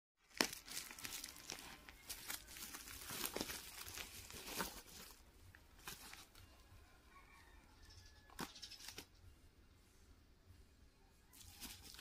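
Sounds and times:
plastic mailer bag crinkling: 0.2s - 6.4s, 11.4s - 12.0s.

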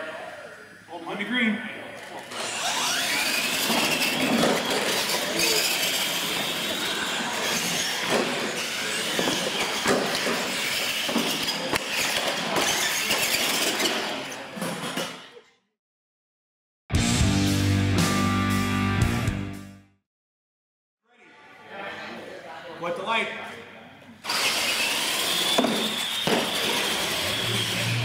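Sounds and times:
toy truck motors whining: 2.0s - 15.1s, 24.2s - 28.0s.

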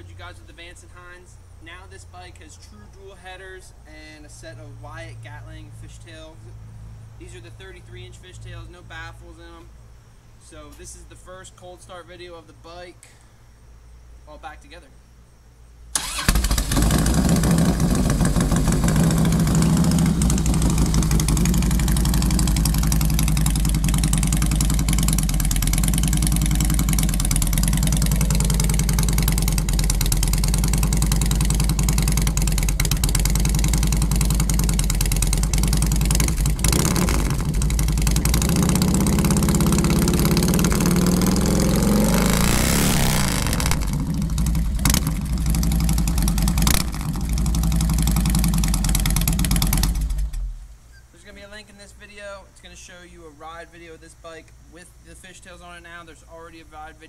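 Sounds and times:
motorcycle engine cranking and starting: 16.0s - 50.7s
motorcycle engine idling: 16.0s - 50.7s.

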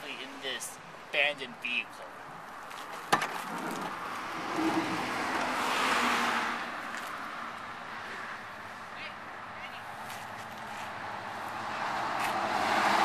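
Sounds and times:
car passing by: 3.5s - 8.8s, 10.0s - 13.0s.

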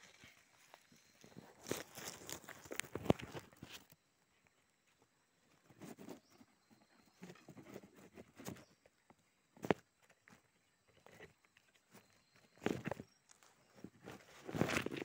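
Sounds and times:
rustling in dry leaves: 0.0s - 3.9s.

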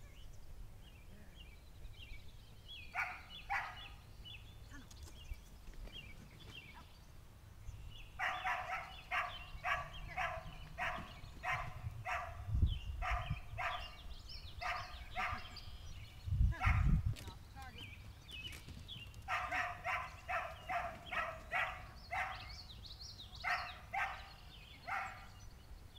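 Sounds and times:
dog barking rapidly: 3.0s - 3.9s, 8.2s - 12.4s, 13.0s - 14.0s, 14.6s - 15.5s, 16.6s - 17.0s, 19.3s - 22.5s, 23.4s - 24.3s, 24.9s - 25.3s.

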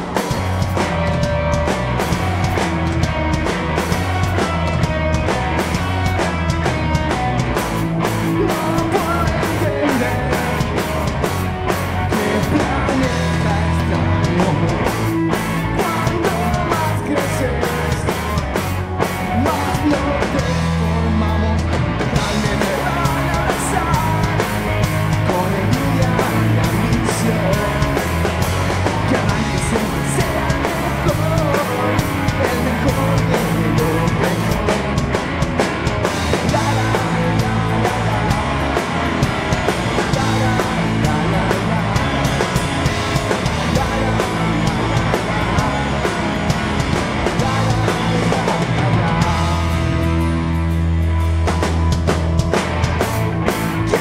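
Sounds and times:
drum kit with crashing cymbals: 0.0s - 21.0s
bass guitar: 0.0s - 54.0s
electric guitar: 0.0s - 54.0s.

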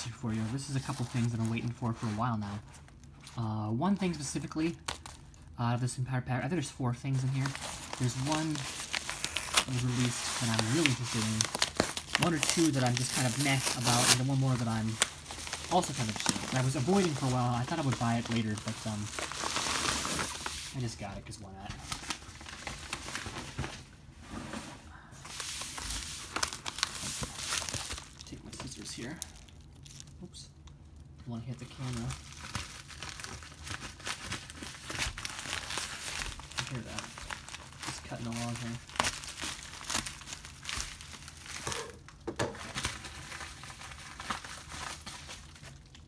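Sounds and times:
plastic mailer rustling and crinkling: 0.0s - 5.4s, 6.6s - 30.2s, 31.3s - 46.0s
sharp plastic crackles: 7.2s - 20.7s, 25.8s - 46.0s.

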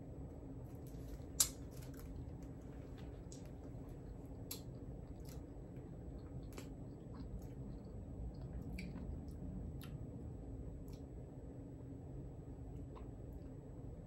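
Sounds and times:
chewing jelly beans: 0.7s - 10.0s.

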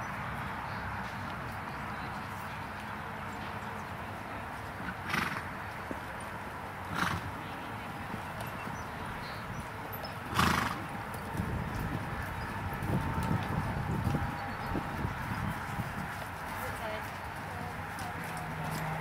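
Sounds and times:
horse hoofbeats on sand: 4.5s - 19.0s.

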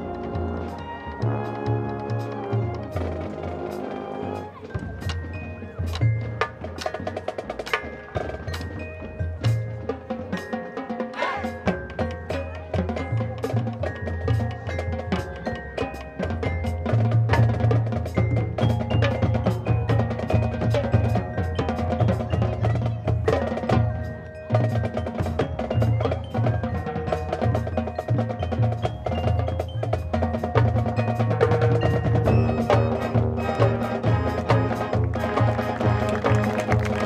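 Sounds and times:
mallet percussion: 0.0s - 37.0s
marching band playing: 0.0s - 37.0s
drum line: 4.6s - 37.0s.

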